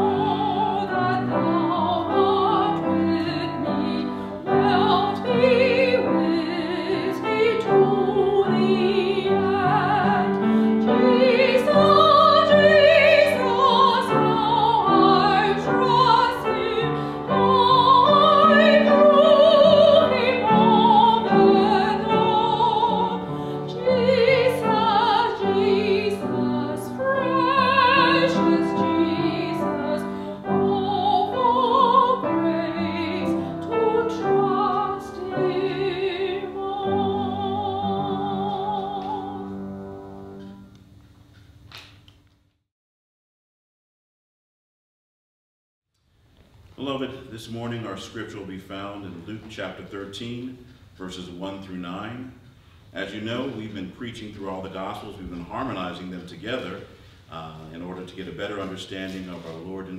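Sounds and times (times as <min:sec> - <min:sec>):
woman singing classical: 0:00.0 - 0:40.7.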